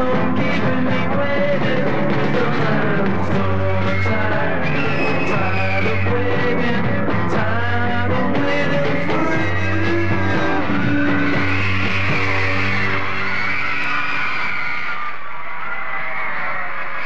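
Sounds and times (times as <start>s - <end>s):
man singing lead vocal: 0.0s - 11.6s
rock band playing: 0.0s - 14.7s.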